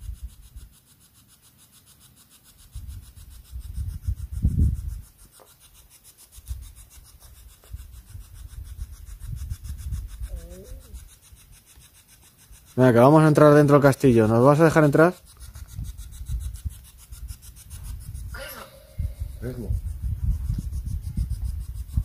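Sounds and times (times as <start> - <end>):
low rubbing and rumbling: 12.6 - 22.0.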